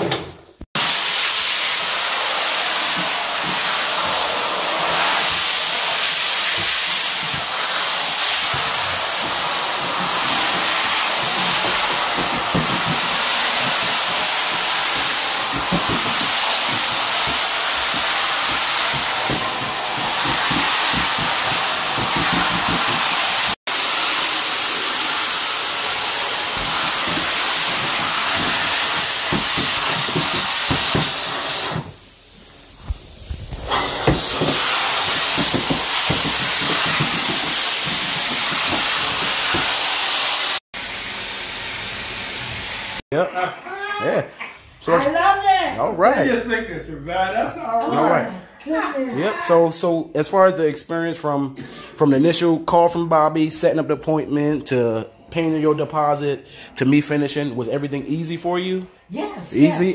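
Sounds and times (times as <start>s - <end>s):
extraction wand suction hiss: 0.8s - 40.6s.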